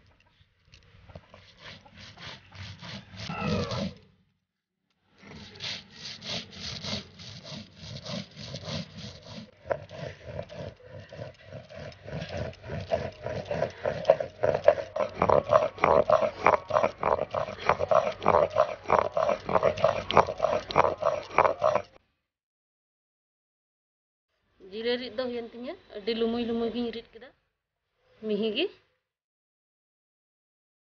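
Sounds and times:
stone grinding on stone: 0:05.3 - 0:21.9.

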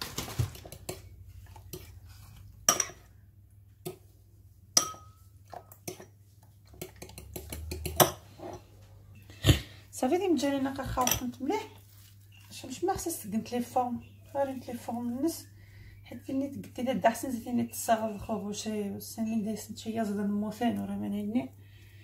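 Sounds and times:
fork clinking against ceramic bowl: 0:04.8 - 0:06.1.

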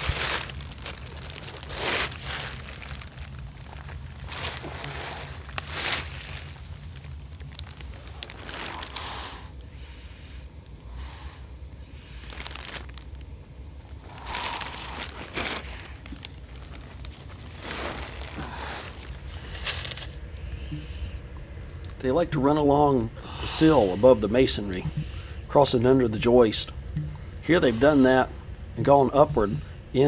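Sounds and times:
plastic sheeting crinkling: 0:00.0 - 0:09.6, 0:12.0 - 0:20.2
steady low hum: 0:00.0 - 0:30.0.

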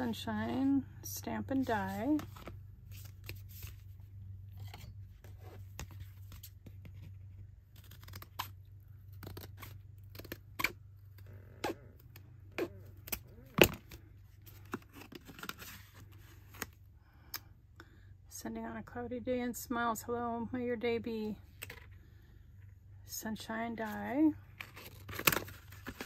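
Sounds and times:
steady low hum: 0:00.0 - 0:26.0
packaging rustling and tearing: 0:24.6 - 0:26.0.

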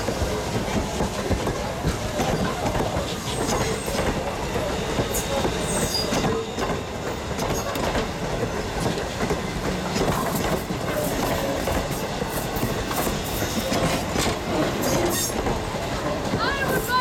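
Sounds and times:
train wheels clacking over rail joints: 0:00.0 - 0:17.0
wheel squeals: 0:05.1 - 0:07.8, 0:14.6 - 0:15.4.

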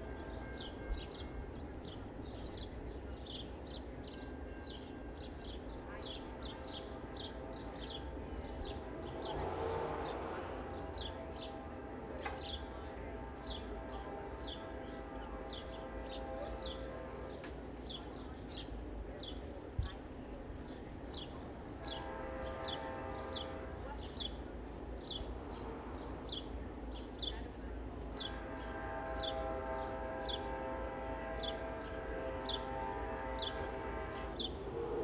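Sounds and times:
locomotive horn blasts: 0:06.6 - 0:17.6, 0:21.8 - 0:24.0, 0:28.1 - 0:35.0.

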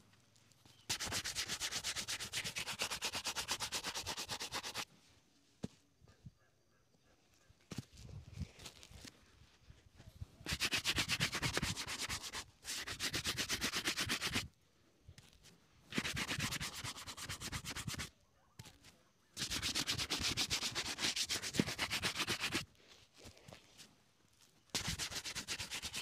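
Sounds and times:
shoe brush scrubbing leather: 0:00.9 - 0:04.8, 0:10.5 - 0:14.5, 0:15.9 - 0:18.1, 0:19.4 - 0:22.7, 0:24.7 - 0:26.0.

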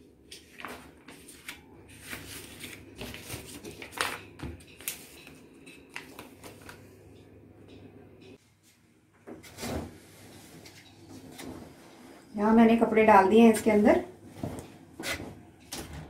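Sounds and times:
paper pages rustling: 0:00.3 - 0:06.9.

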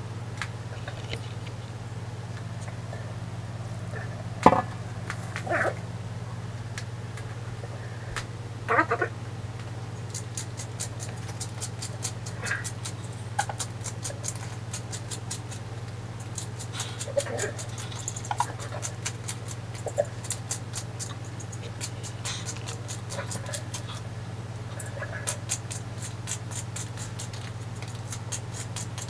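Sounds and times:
seasoning grinder clicking: 0:10.1 - 0:24.0, 0:25.3 - 0:29.0.

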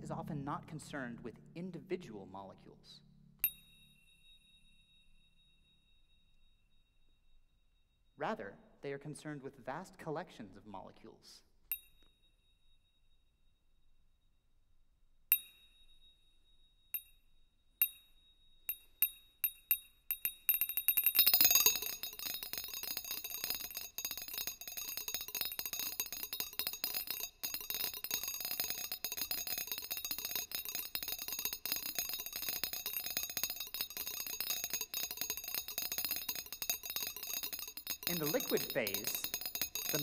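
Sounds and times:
high ringing pings: 0:03.4 - 0:08.2, 0:15.3 - 0:40.0.

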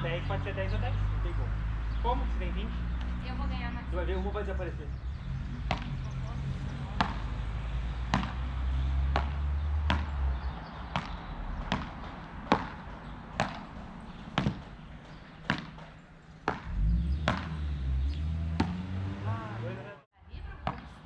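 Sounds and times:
ball hit by paddles: 0:08.1 - 0:08.5, 0:09.1 - 0:10.2, 0:10.9 - 0:14.8, 0:15.4 - 0:17.6, 0:18.6 - 0:18.8.

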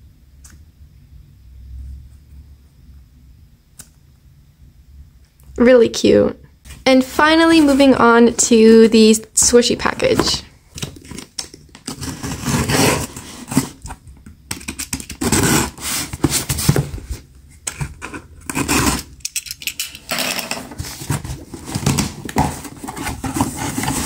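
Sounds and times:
box cutter scraping cardboard: 0:11.9 - 0:13.8, 0:15.0 - 0:16.9, 0:17.7 - 0:19.2, 0:20.8 - 0:24.0
hands handling cardboard box: 0:14.6 - 0:18.7, 0:20.7 - 0:24.0.

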